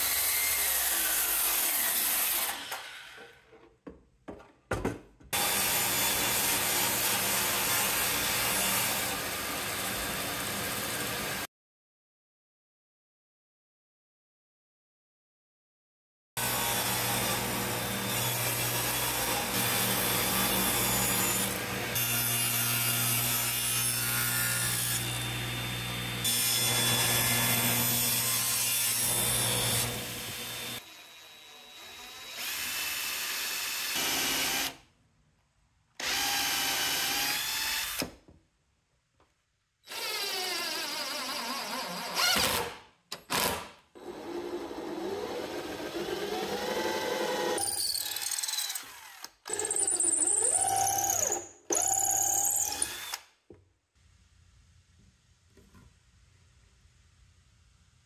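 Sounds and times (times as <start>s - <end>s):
power tools cutting wood: 0.0s - 3.4s, 5.4s - 11.5s, 16.4s - 34.8s, 36.0s - 38.2s, 39.9s - 53.3s.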